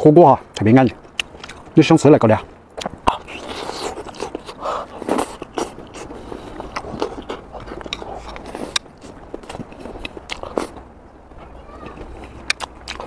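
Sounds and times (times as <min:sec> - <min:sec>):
wet mouth clicks: 0:00.6 - 0:01.7, 0:02.8 - 0:10.8, 0:12.0 - 0:13.0
man chewing food: 0:00.6 - 0:01.8, 0:02.4 - 0:13.0.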